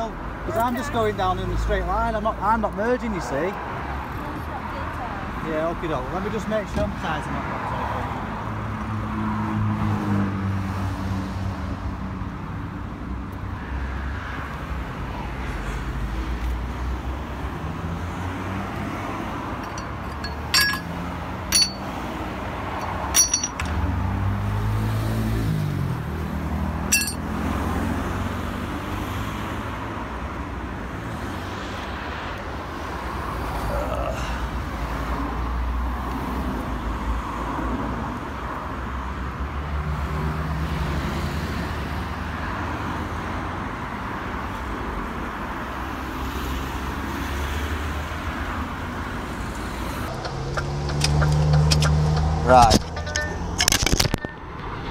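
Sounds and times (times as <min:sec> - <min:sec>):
road traffic noise: 0:00.0 - 0:54.9
sharp metallic clinks: 0:19.6 - 0:22.0, 0:22.8 - 0:23.8, 0:26.9 - 0:27.3, 0:52.6 - 0:54.4.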